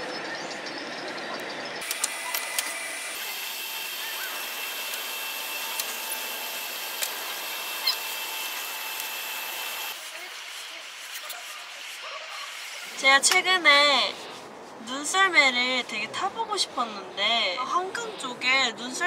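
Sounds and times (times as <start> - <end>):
pedal boat drive whirring: 1.8 - 10.0.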